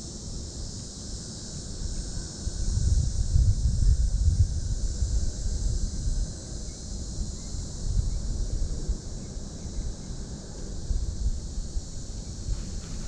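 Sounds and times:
steady high hiss: 0.0 - 13.0
wind buffeting microphone: 2.6 - 6.4, 10.9 - 13.0.

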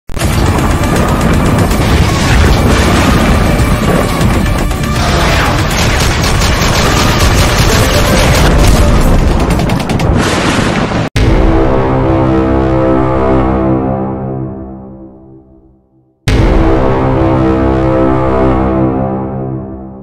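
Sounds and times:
loud intro music: 0.2 - 10.2, 11.2 - 15.6, 16.3 - 20.0
rapid gunfire effects: 0.2 - 11.1
booming hits: 0.2 - 13.2, 16.3 - 19.0.

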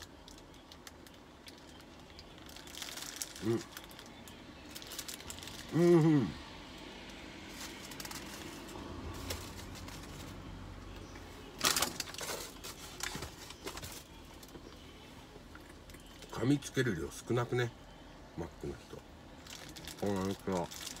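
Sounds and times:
paper wrapper crinkling: 0.0 - 5.7, 7.4 - 10.4, 19.4 - 21.0
man humming: 5.7 - 6.4.

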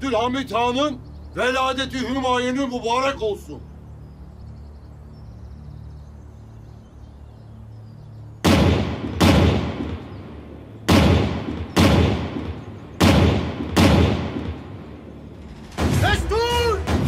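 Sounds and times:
artillery guns firing: 8.4 - 17.0.

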